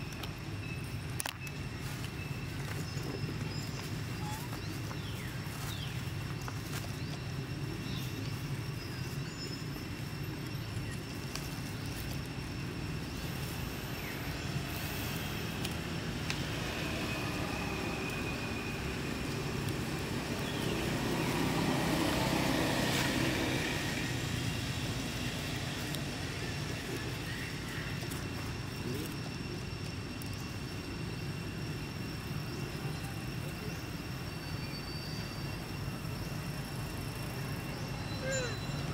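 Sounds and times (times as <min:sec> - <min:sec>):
distant road traffic rumble: 0:00.0 - 0:38.9
faint bird chirps: 0:00.6 - 0:12.1, 0:37.3 - 0:38.9
vehicle passing: 0:14.8 - 0:27.7.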